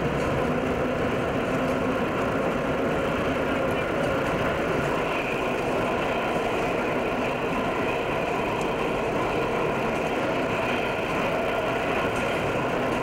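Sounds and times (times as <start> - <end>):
subway train rumbling: 0.0 - 13.0.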